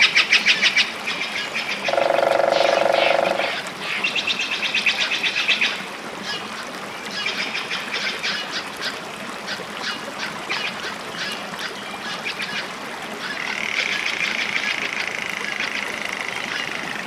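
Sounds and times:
steady high tone: 1.9 - 3.6.

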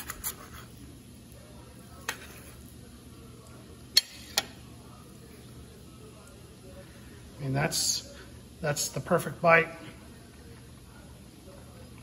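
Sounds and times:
knife and fork clicking on plate: 4.0 - 4.6.

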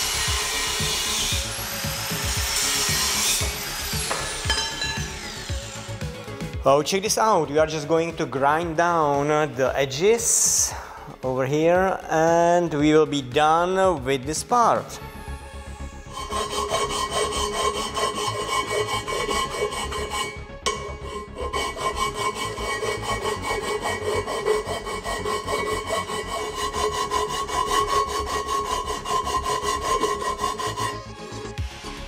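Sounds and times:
steel bar scraping on abrasive surface: 0.0 - 6.1, 15.9 - 31.6.

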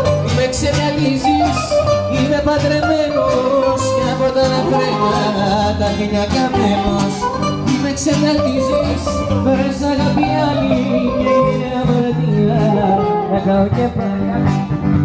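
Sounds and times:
man singing into a microphone: 0.0 - 14.9
acoustic guitars playing: 0.0 - 15.0.

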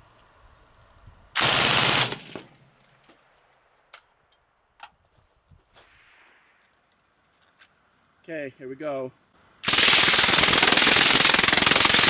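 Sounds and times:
suppressed rifle automatic burst: 1.4 - 2.4, 9.6 - 12.0.

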